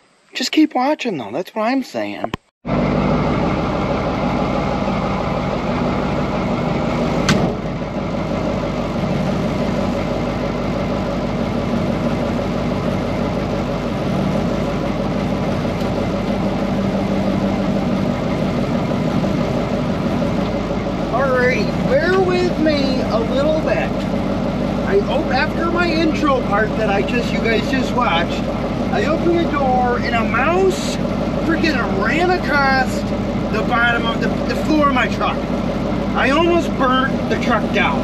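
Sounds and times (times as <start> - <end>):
diesel truck engine idling: 2.7 - 38.0.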